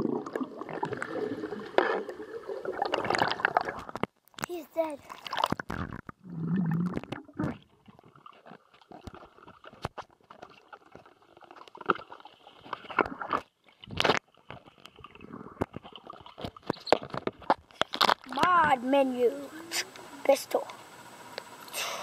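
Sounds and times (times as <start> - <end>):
underwater gurgling and bubbling: 0.0 - 4.1, 5.2 - 17.4, 18.3 - 21.6.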